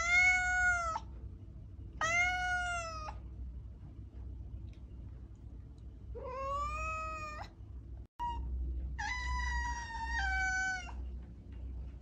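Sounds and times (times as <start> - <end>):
cat meowing: 0.0 - 1.1, 2.0 - 3.2, 6.2 - 7.5, 9.0 - 11.0.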